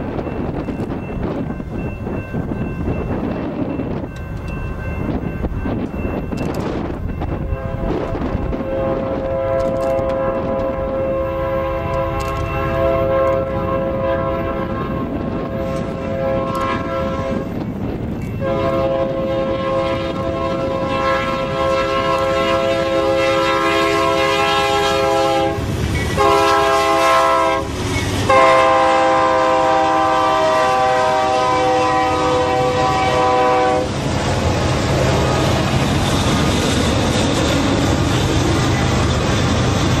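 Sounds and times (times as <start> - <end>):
diesel locomotives passing: 0.0 - 40.0
locomotive air horn blasts: 7.5 - 17.6, 18.4 - 34.0.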